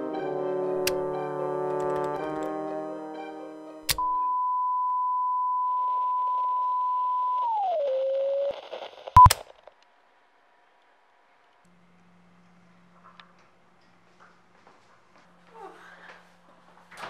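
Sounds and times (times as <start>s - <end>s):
electronic reference tone: 4.0s - 9.3s
faint static: 4.9s - 15.5s.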